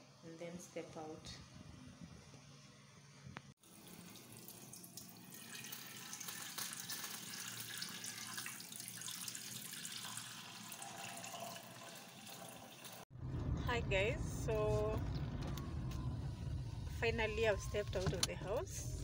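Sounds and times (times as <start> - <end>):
milk pouring into metal saucepan: 3.6 - 13.0.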